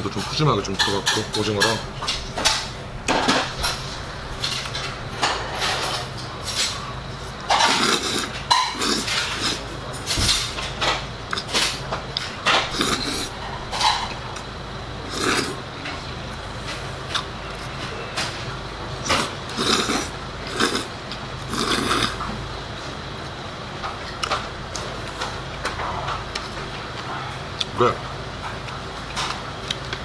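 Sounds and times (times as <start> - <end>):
person slurping noodles: 7.7 - 9.6, 12.7 - 13.3, 15.1 - 15.6, 19.2 - 20.9, 21.5 - 22.2
person chewing: 19.1 - 22.2.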